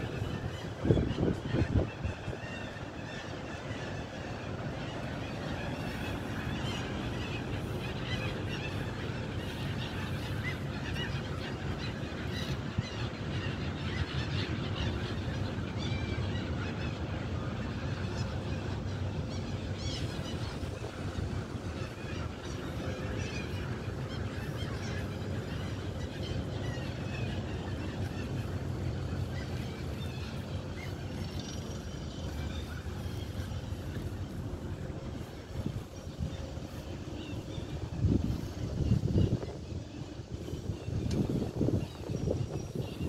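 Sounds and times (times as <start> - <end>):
water birds calling: 0.0 - 43.0
steady low rumble: 17.0 - 43.0.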